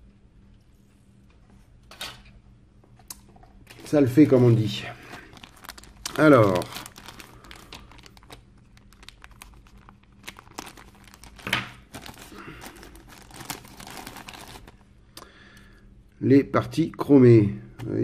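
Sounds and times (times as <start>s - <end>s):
plastic bag crinkling: 3.6s - 14.9s.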